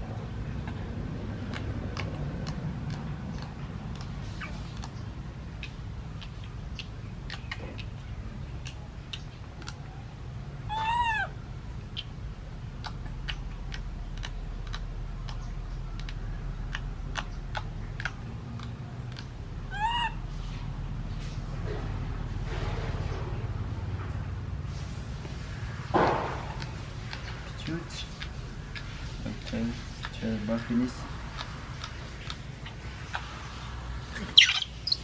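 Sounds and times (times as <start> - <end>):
baby monkey coo calls: 10.7 - 12.2, 16.0 - 20.3, 34.2 - 35.0.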